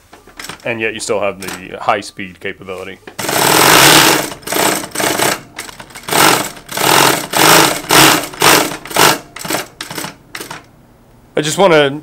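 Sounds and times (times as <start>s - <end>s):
sewing machine stitching in bursts: 3.2s - 10.7s.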